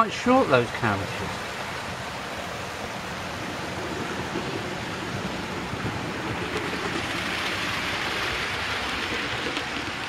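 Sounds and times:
model train wheels rumbling on rails: 3.2 - 10.0.

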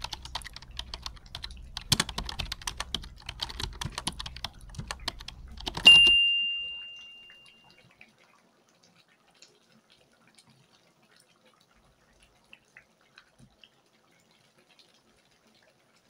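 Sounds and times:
typing key clicks: 0.0 - 6.2
bell ding: 5.8 - 7.7.

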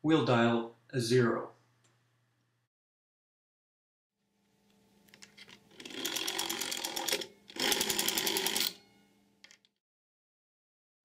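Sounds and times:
rotary dial rattling as it winds: 5.4 - 8.8.

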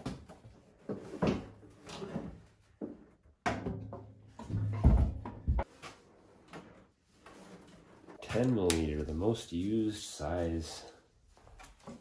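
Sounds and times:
knocks and clatter of metal parts: 0.0 - 5.7.

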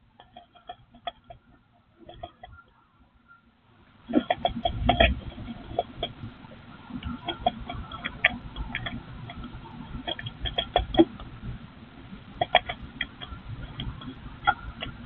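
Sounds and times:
birds clicking in nest: 4.2 - 6.3, 7.0 - 11.2.

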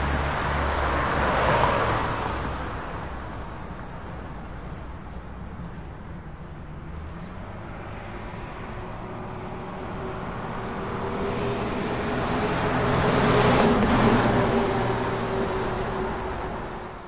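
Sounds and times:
busy street traffic: 0.0 - 17.0
vehicle passing close: 6.8 - 17.0.

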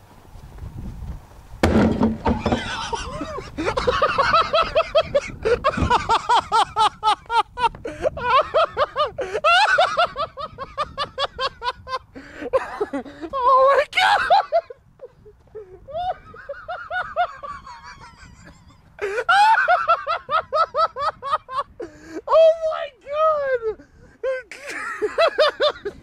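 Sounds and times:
bottle bomb bang: 1.6 - 2.6
high-pitched laughter: 2.4 - 22.6, 23.3 - 26.0.

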